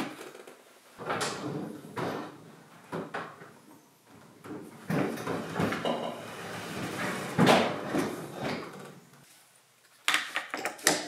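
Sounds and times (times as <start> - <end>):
refrigerator sliding on tile floor: 4.9 - 8.8.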